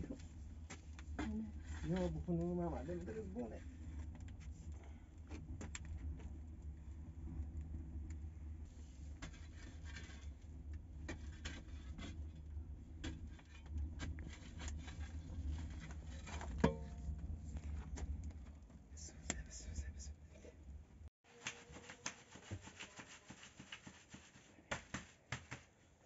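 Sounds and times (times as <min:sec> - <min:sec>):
stick scraping and knocking wood: 0:00.0 - 0:06.4, 0:08.7 - 0:18.7, 0:21.3 - 0:25.7
wood fire crackling: 0:00.0 - 0:19.4
steady low rumble: 0:00.0 - 0:21.1.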